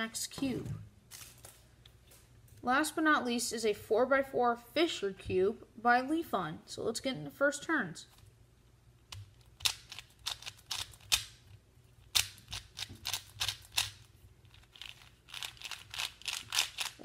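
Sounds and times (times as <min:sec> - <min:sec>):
plastic puzzle clicking as turned: 0:12.1 - 0:17.0.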